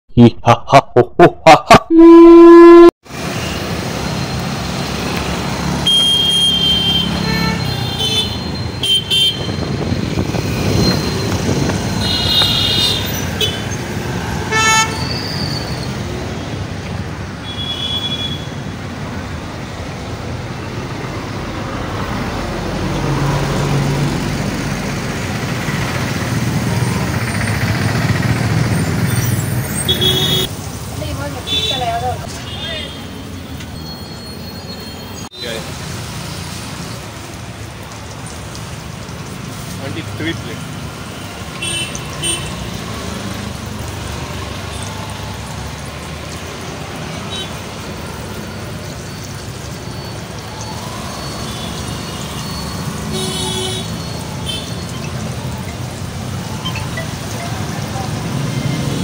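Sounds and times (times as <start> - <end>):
short horn toots: 1.9 - 2.9
scooters and cars passing: 3.1 - 59.0.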